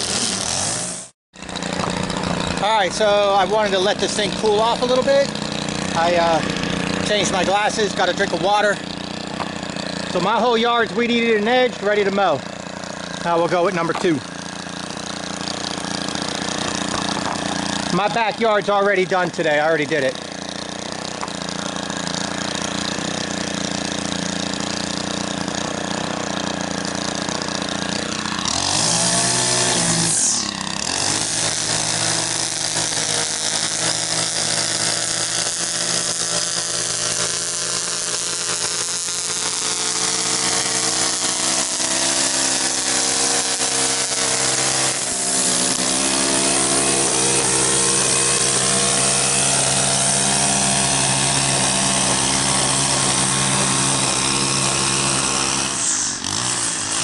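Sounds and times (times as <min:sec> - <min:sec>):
string trimmer engine running: 0:00.0 - 0:57.0.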